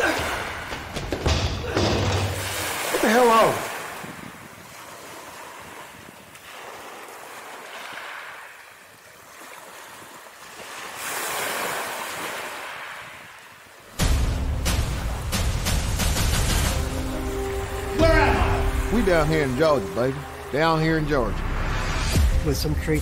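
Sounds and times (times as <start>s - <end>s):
ocean waves washing: 0.0s - 23.0s
loud music: 14.0s - 20.6s.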